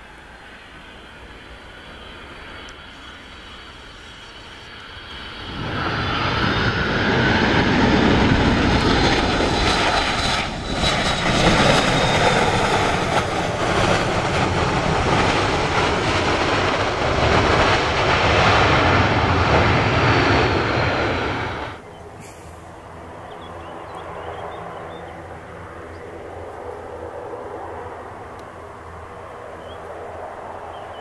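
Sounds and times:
high jet whine: 0:00.0 - 0:31.0
jet engines at high power: 0:00.0 - 0:31.0.

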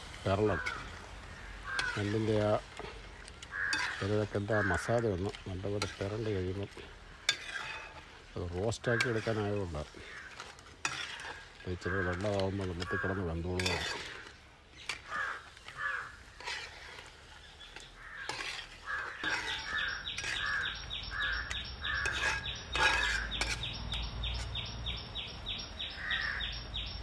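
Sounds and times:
crows cawing: 0:00.3 - 0:05.4, 0:08.8 - 0:17.0, 0:17.8 - 0:23.4, 0:25.8 - 0:26.6.

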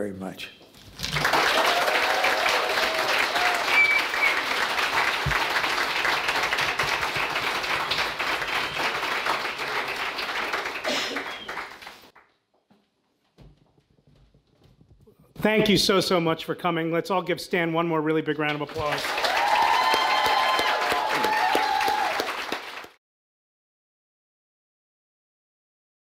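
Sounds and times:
audience applauding: 0:00.9 - 0:12.2, 0:18.5 - 0:23.0.

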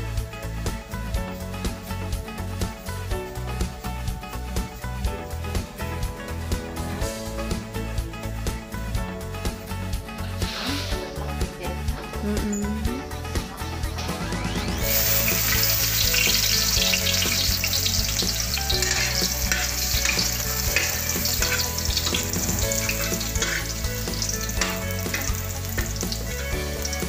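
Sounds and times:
garlic sizzling in hot oil: 0:14.8 - 0:27.0
metal ladle scraping a wok: 0:15.0 - 0:26.9.

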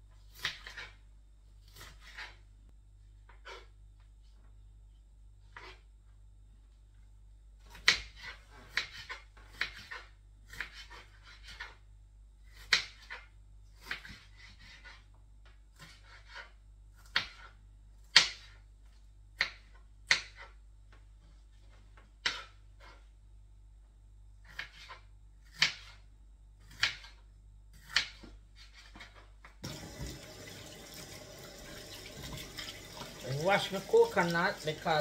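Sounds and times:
knife chopping on cutting board: 0:00.3 - 0:01.0, 0:01.6 - 0:02.4, 0:07.7 - 0:11.8, 0:12.5 - 0:15.1, 0:15.7 - 0:18.7, 0:19.4 - 0:20.6, 0:22.2 - 0:23.0, 0:24.4 - 0:26.0, 0:26.6 - 0:30.2.

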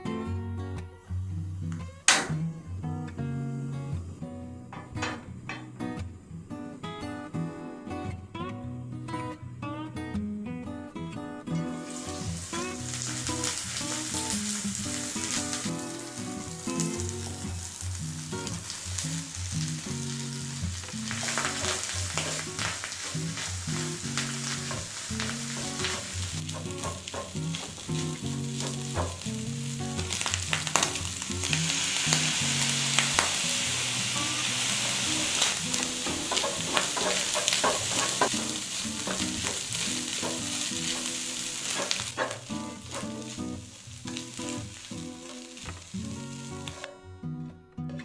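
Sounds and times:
rice sizzling in a frying pan: 0:11.8 - 0:46.8
wooden spatula scraping a pan: 0:35.5 - 0:43.3.

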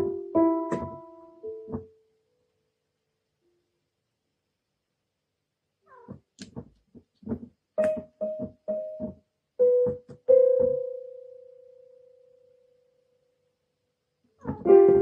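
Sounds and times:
electronic keyboard notes: 0:00.0 - 0:01.9, 0:07.8 - 0:12.2, 0:14.6 - 0:15.0.

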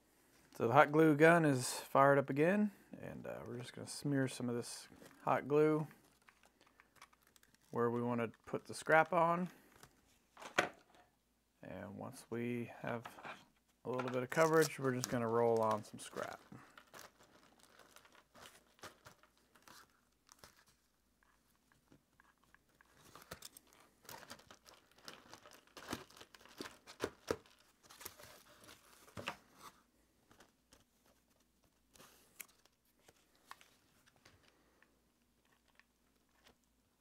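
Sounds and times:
foil crinkling: 0:06.0 - 0:07.8, 0:14.2 - 0:20.9, 0:22.3 - 0:29.0.

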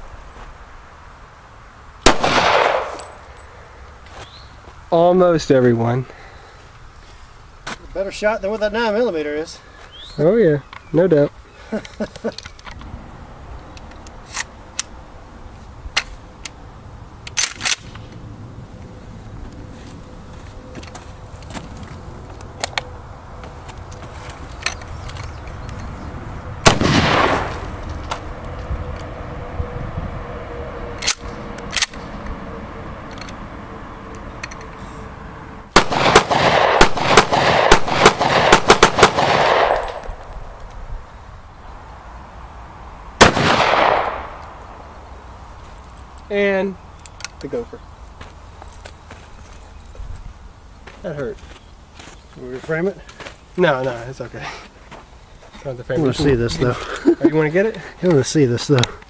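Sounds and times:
gunshots: 0:02.0 - 0:03.1, 0:26.6 - 0:27.8, 0:35.7 - 0:40.1, 0:43.2 - 0:44.4
pistol fired rapidly: 0:02.1 - 0:03.0, 0:35.7 - 0:39.9
shotgun metallic clacks: 0:02.1 - 0:03.4, 0:35.8 - 0:40.4.

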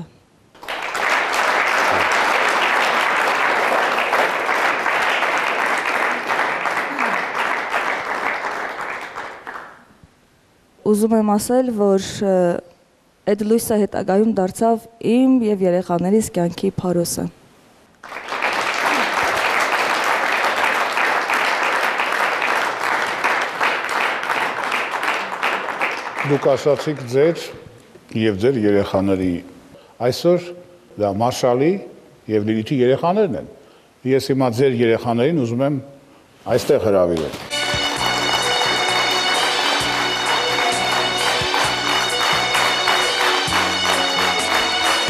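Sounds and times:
audience applauding: 0:00.6 - 0:09.9, 0:18.0 - 0:27.4, 0:37.2 - 0:45.0.

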